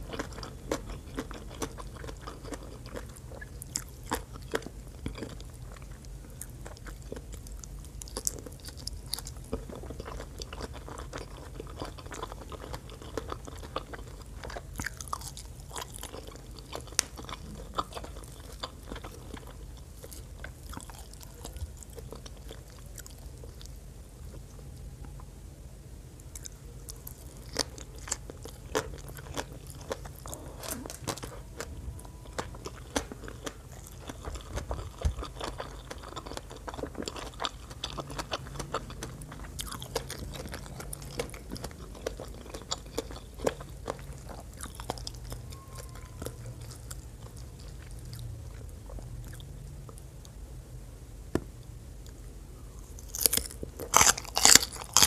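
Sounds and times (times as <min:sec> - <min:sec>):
wet chewing: 0:00.0 - 0:23.7, 0:26.3 - 0:50.0, 0:53.0 - 0:55.0
loud crunching bites: 0:53.1 - 0:55.0.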